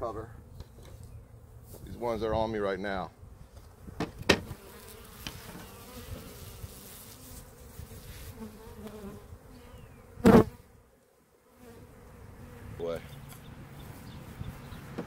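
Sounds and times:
honey bees buzzing: 0:03.6 - 0:15.0.

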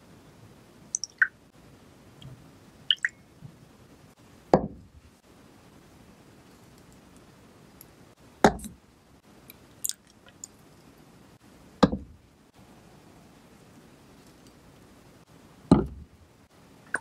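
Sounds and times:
bottles knocking on wooden board: 0:08.4 - 0:08.7, 0:15.7 - 0:16.0.

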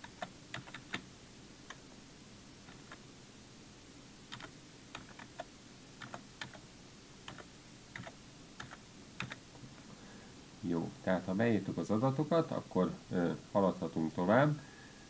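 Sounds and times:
computer keyboard typing: 0:00.0 - 0:01.1, 0:02.6 - 0:03.0, 0:04.3 - 0:06.6, 0:07.2 - 0:09.4.

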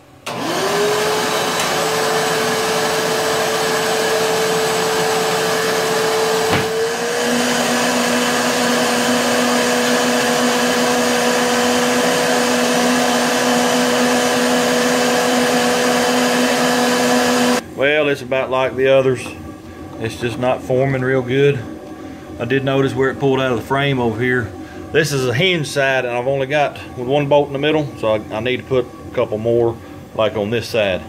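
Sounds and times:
shop vacuum running: 0:00.0 - 0:31.0
lower hum: 0:08.0 - 0:31.0.

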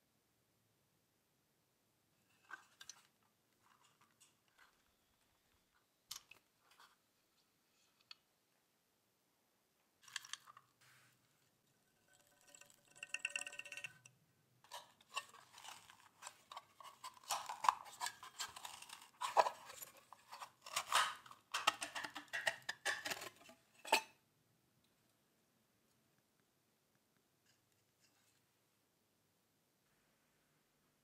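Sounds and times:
steel parts clicking and rattling: 0:12.1 - 0:14.1, 0:20.7 - 0:24.0.

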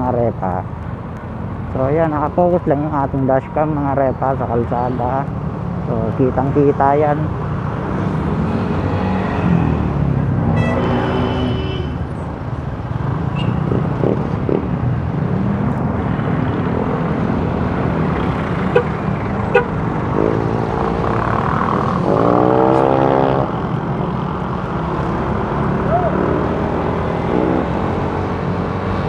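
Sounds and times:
road and wind noise: 0:00.0 - 0:29.0
pitched vehicle tones: 0:10.5 - 0:12.1
vehicle horn toot: 0:10.6 - 0:12.0, 0:19.5 - 0:19.7.

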